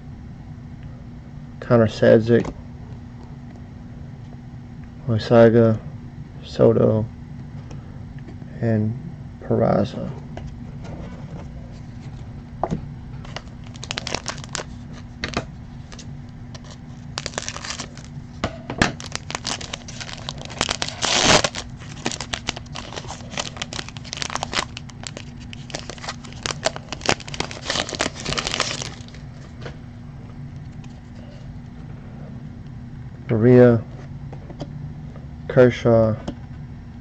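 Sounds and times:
foil wrapper crinkling: 13.3 - 18.1, 19.0 - 29.5
foil wrapper tearing: 13.3 - 18.1, 19.0 - 29.2.

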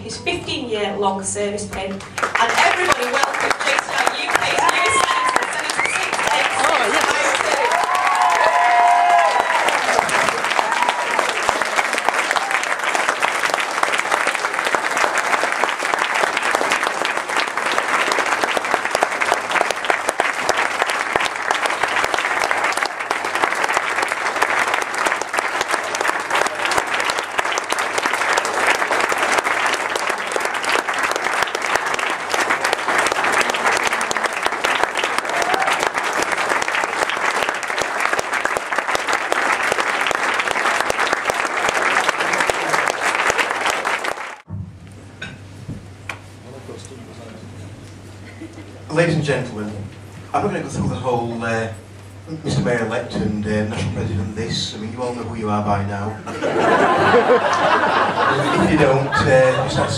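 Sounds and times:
audience applauding: 1.9 - 44.5, 56.4 - 59.9.

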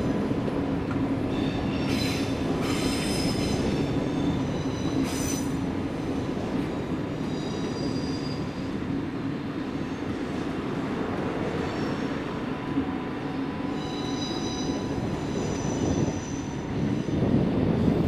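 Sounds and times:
train rumbling over track: 0.0 - 18.0
train wheels squealing: 1.3 - 6.3, 7.1 - 8.8, 11.6 - 12.2, 13.6 - 17.2.

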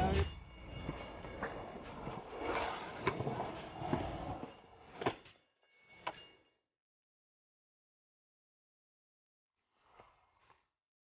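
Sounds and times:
scooter wheels rolling on concrete: 0.0 - 5.0.

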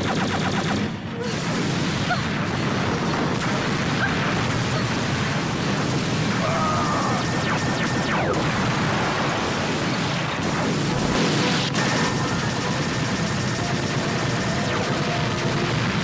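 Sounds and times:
soundtrack music: 10.9 - 16.0.

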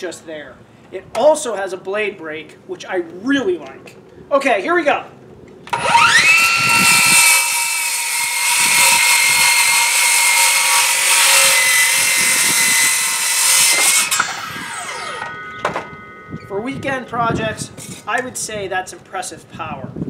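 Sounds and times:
circular saw cutting wood: 5.7 - 16.4.

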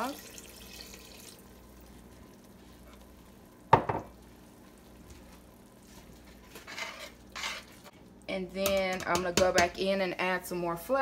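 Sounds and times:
pot simmering on stove: 0.0 - 8.3.

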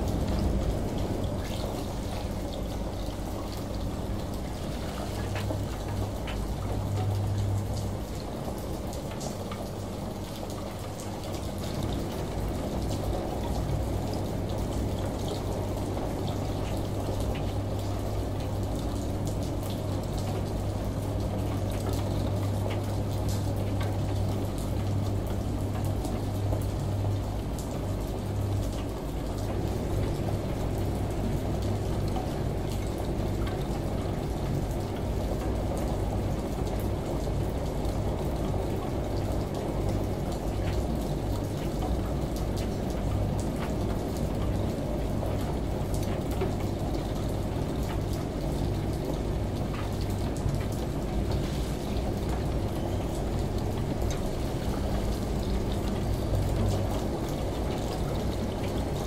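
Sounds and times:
rain pattering: 0.0 - 59.0
shower running: 0.0 - 59.0
washing machine humming: 0.0 - 59.0.

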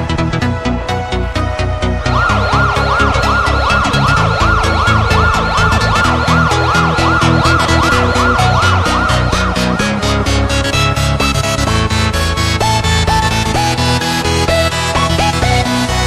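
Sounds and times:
siren-like wail: 2.0 - 12.5
electronic dance music: 2.1 - 12.0.

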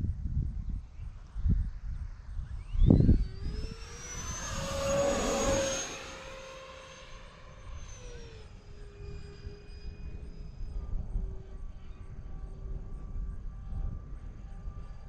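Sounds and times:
jet ducted fans whining: 2.5 - 12.2.

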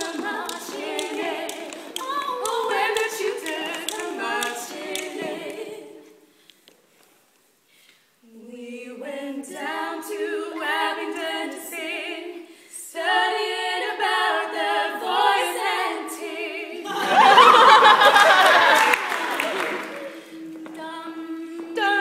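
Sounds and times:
women singing in harmony: 0.0 - 6.3, 8.3 - 18.3, 19.9 - 22.0
audience noise: 16.9 - 20.8.

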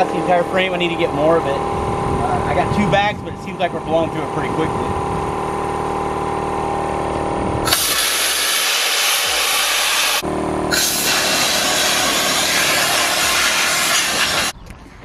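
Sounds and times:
sandblaster hissing: 7.6 - 14.6.

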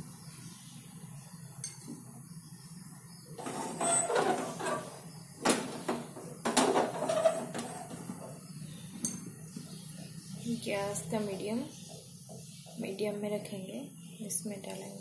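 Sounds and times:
metal pan scraping on grate: 3.4 - 8.1.

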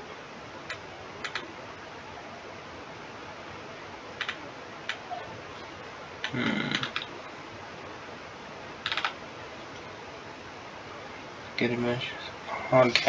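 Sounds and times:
microphone hiss: 0.0 - 13.0
computer mouse clicking: 0.7 - 1.4, 4.2 - 5.0, 6.2 - 7.1, 8.8 - 9.2.

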